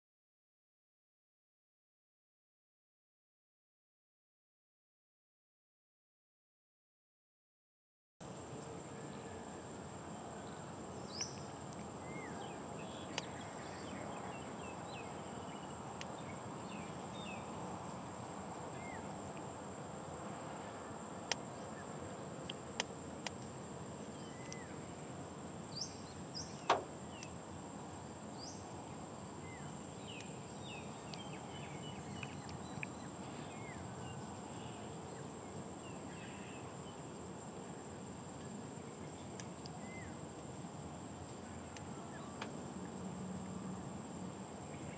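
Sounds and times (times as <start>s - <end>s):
low hiss: 8.2s - 44.9s
high-pitched insect drone: 27.9s - 37.4s.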